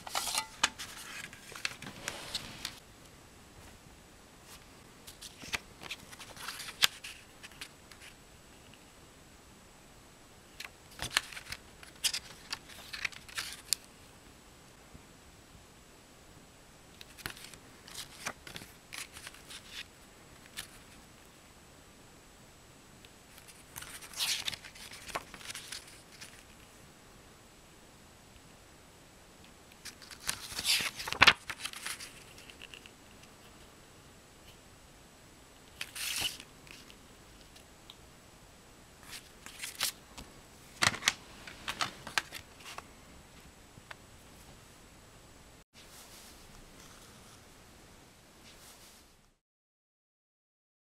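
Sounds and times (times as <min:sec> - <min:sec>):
paper pages rustling: 0:00.0 - 0:02.8, 0:04.4 - 0:08.2, 0:10.6 - 0:13.9, 0:17.0 - 0:21.0, 0:23.3 - 0:26.7, 0:29.8 - 0:32.9, 0:35.7 - 0:37.6, 0:39.0 - 0:40.0, 0:40.7 - 0:42.8.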